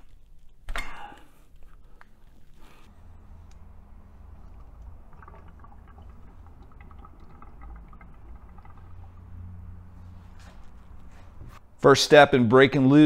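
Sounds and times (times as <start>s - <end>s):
steady low hum: 0.0s - 11.8s
oil dripping and trickling: 2.3s - 11.6s.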